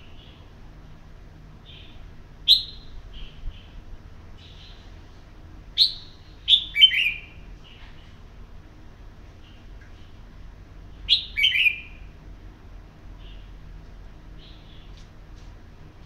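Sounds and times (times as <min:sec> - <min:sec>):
bird chirping: 0:01.6 - 0:03.8, 0:04.4 - 0:04.9, 0:05.8 - 0:08.2, 0:11.1 - 0:12.1, 0:13.2 - 0:13.5, 0:14.4 - 0:15.0.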